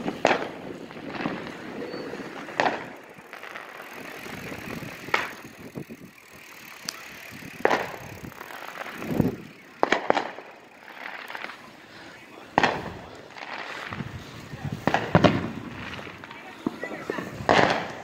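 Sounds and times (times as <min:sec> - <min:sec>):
firecracker bangs: 0:00.0 - 0:03.8, 0:07.6 - 0:11.7, 0:12.5 - 0:18.0
bicycle being ridden: 0:00.0 - 0:18.0.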